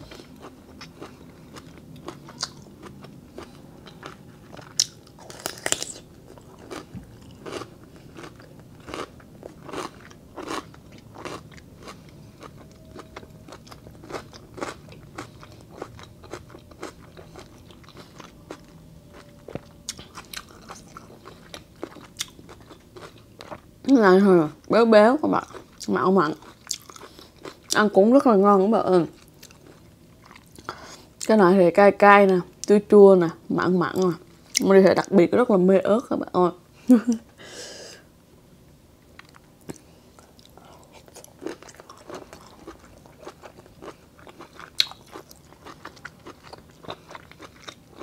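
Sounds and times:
person chewing crunchy cucumber: 0.0s - 23.6s, 25.4s - 27.8s, 29.1s - 30.9s, 39.2s - 48.0s.

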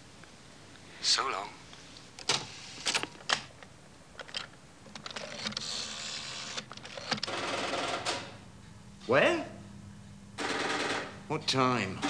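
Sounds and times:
tape whirring hiss: 5.2s - 7.2s.

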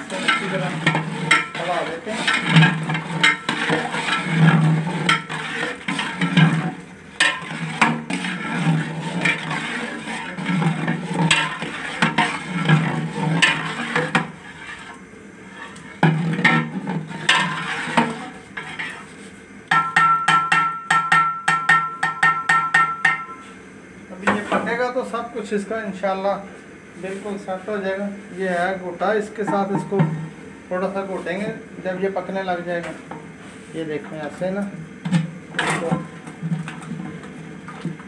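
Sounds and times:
metal ladle scraping a pot: 0.0s - 20.9s, 29.4s - 30.4s, 35.1s - 37.9s.

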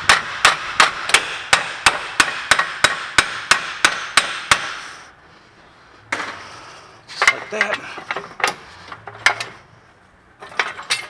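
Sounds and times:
hammer striking metal: 0.0s - 4.9s.

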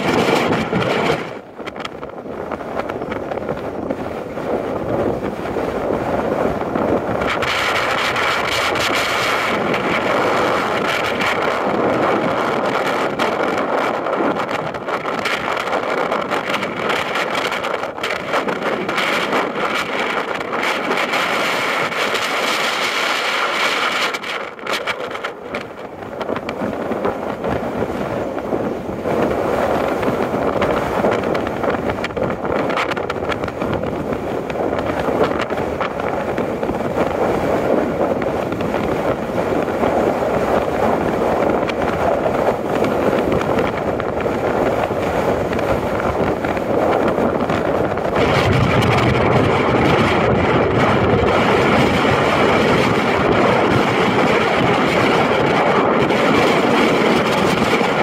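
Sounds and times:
wind on microphone: 0.0s - 58.0s.

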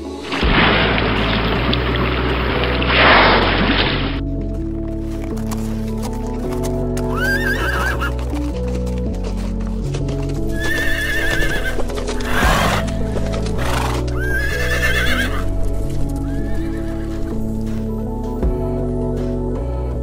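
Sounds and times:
background music: 0.0s - 20.0s
zebra calls: 7.0s - 8.2s, 10.4s - 17.4s.

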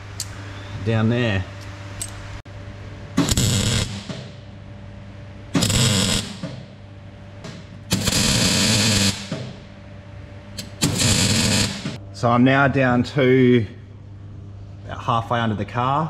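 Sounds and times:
welding arc crackle: 3.2s - 4.3s, 5.6s - 6.6s, 7.8s - 9.3s, 10.6s - 12.0s.

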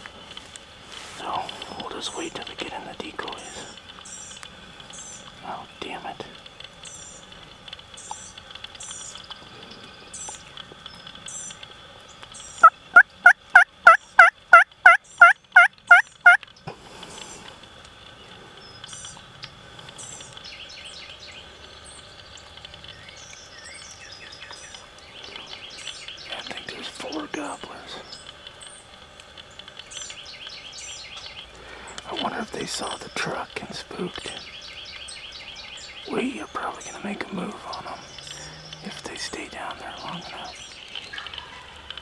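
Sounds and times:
faint songbird chirps: 1.2s - 6.2s, 6.8s - 13.3s, 18.0s - 42.0s
turkey yelps: 12.9s - 16.4s.

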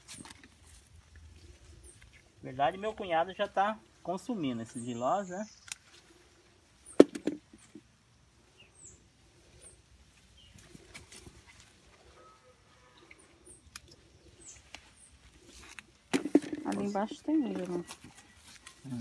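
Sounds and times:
small birds chirping: 0.0s - 19.0s
boot footsteps through rustling plants: 16.9s - 19.0s.

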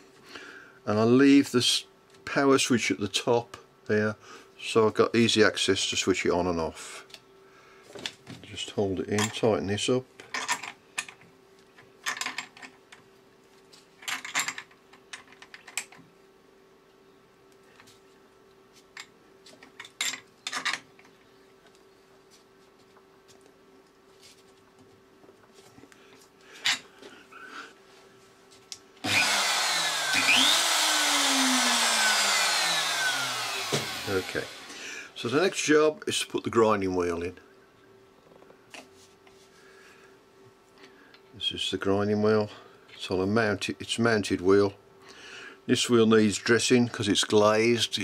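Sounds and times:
faint steady hum: 0.0s - 48.0s
saw motor whining and winding down: 29.0s - 35.2s.

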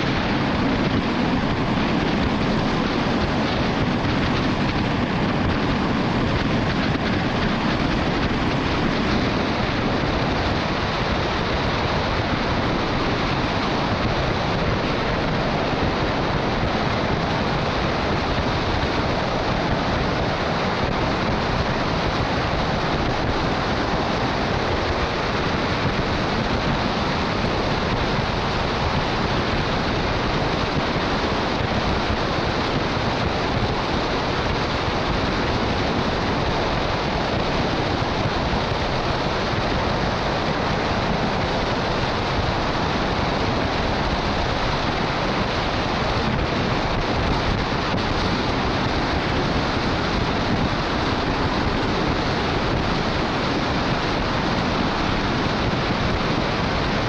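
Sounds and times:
wind buffeting a camera: 0.0s - 57.0s.

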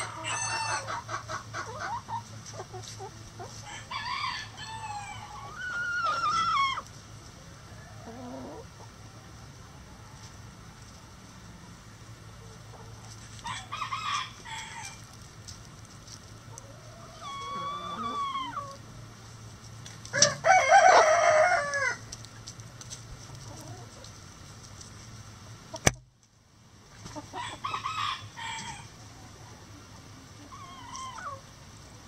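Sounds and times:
hens clucking and squawking: 0.0s - 9.1s, 16.4s - 19.0s, 20.1s - 22.1s, 23.2s - 24.2s, 26.9s - 31.6s
rooster crowing: 3.7s - 6.8s, 20.1s - 22.0s, 27.4s - 28.9s
sharp click: 25.8s - 26.1s.

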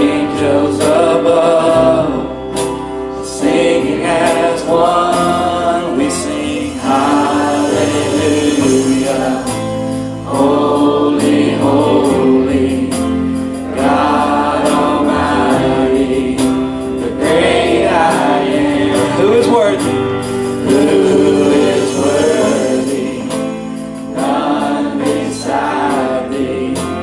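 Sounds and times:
choir singing: 0.0s - 27.0s
instrumental backing: 0.0s - 27.0s
percussion beat: 4.4s - 11.5s, 18.0s - 26.1s.

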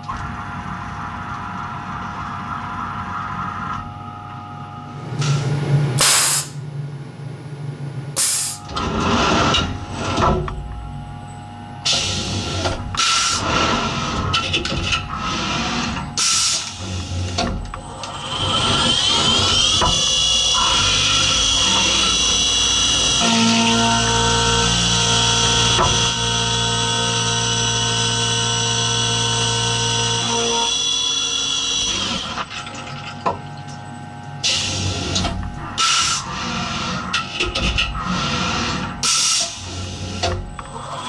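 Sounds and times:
spindle whine: 4.7s - 8.8s
air blasts: 4.9s - 6.7s, 8.1s - 8.7s.

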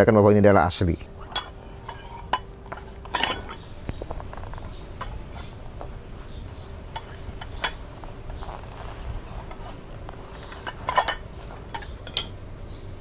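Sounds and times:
metal poles clinking: 1.1s - 12.5s
fabric bag rustling: 7.2s - 11.8s.

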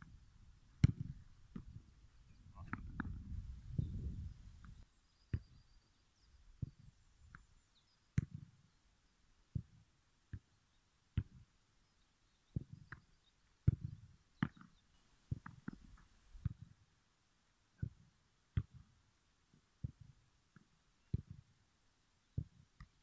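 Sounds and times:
football thuds: 0.8s - 1.8s.

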